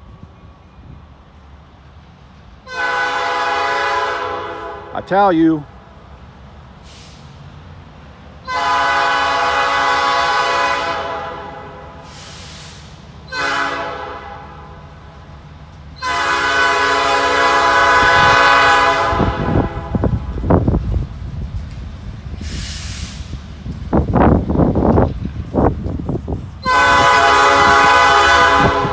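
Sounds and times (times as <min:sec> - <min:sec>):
locomotive air horn blasts: 0:02.7 - 0:05.0, 0:08.4 - 0:12.5, 0:13.3 - 0:14.8, 0:16.0 - 0:20.2, 0:26.6 - 0:28.9.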